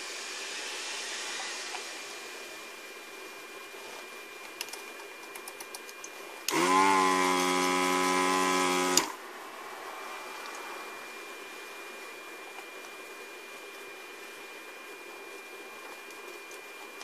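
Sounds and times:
vacuum pump buzzing: 6.4 - 17.0.

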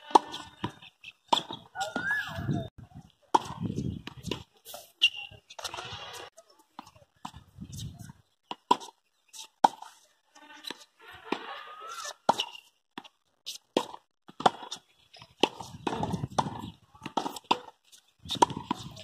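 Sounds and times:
tennis balls struck with racket: 13.7 - 19.0
balls bouncing on hard court: 15.4 - 17.7.

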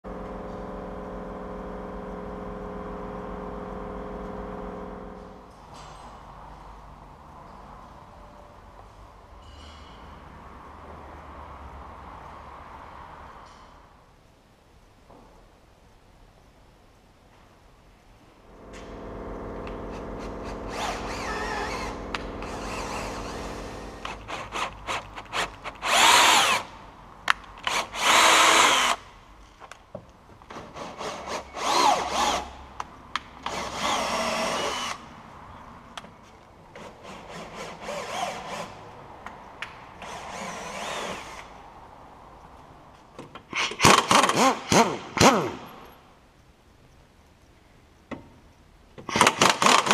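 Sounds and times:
cordless drill whining: 20.4 - 26.7, 27.6 - 29.0, 31.0 - 32.5, 33.4 - 35.0, 40.0 - 41.5.

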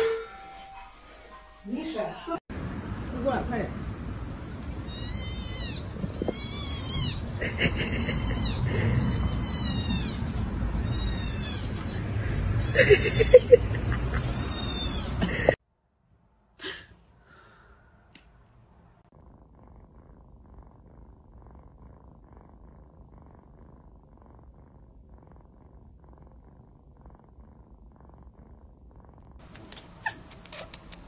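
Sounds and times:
kitten purring: 4.1 - 15.6, 18.9 - 31.0.

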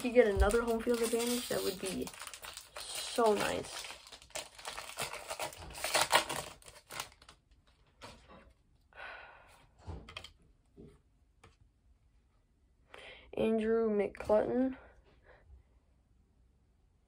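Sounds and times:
cards shuffled and flicked: 0.0 - 2.2
plastic foil wrapper crinkling: 0.0 - 7.9.

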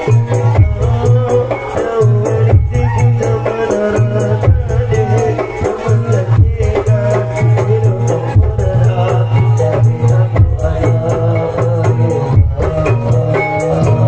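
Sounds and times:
quick rattling beat: 0.0 - 14.0.

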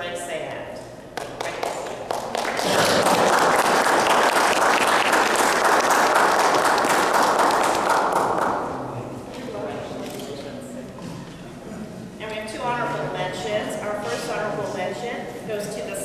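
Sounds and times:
audience applauding: 1.2 - 8.9.

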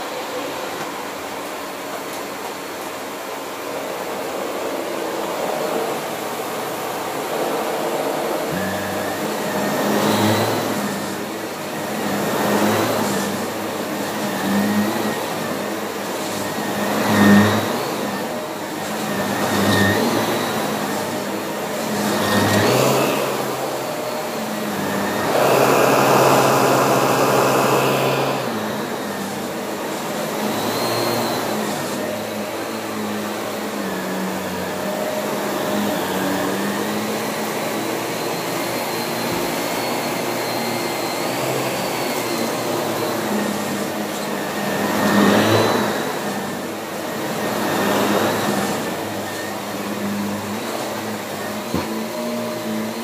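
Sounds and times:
vacuum cleaner running: 0.0 - 53.0.

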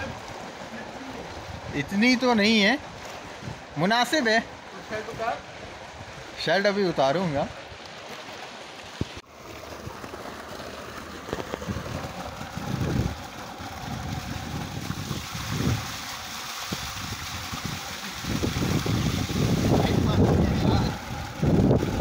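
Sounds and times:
wind buffeting microphone: 1.2 - 2.0, 2.8 - 3.8, 11.4 - 22.0
person wading and splashing: 2.8 - 3.9, 7.6 - 22.0
water gushing into tank: 8.3 - 22.0.

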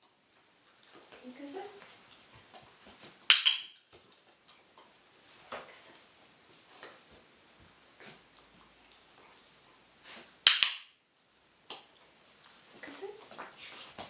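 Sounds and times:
sharp loud click: 10.5 - 10.9.

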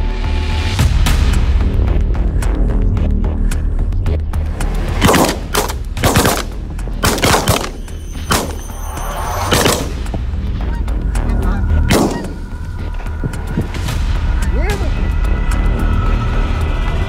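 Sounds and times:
shotgun shots with echo: 5.0 - 8.6, 9.5 - 10.1, 11.9 - 12.4.

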